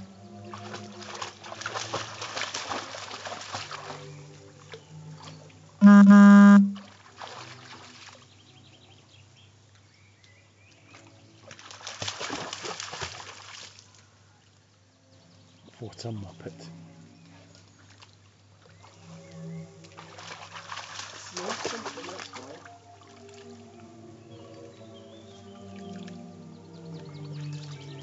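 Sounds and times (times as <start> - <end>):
dog splashing through water: 0.6 - 4.1, 11.4 - 13.8, 19.9 - 23.5
loud steady tone: 5.8 - 6.8.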